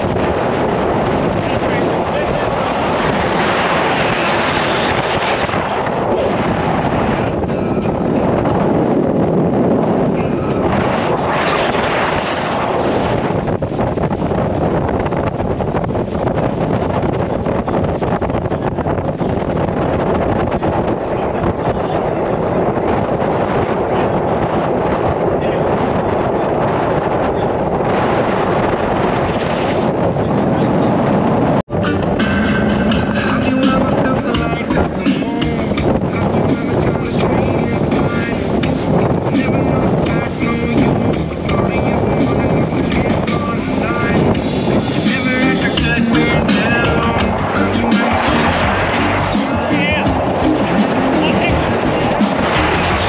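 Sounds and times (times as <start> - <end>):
motorboat running at speed: 0.0 - 53.0
wind rushing over microphone: 0.0 - 53.0
music with steady tones: 31.7 - 37.9, 38.5 - 53.0
motorboat engine: 31.7 - 53.0.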